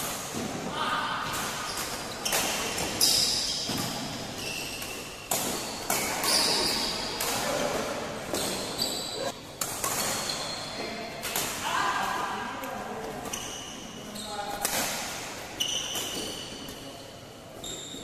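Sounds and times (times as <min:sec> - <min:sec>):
shoes squeaking on court floor: 0:01.3 - 0:11.1, 0:13.0 - 0:14.7, 0:15.5 - 0:18.0.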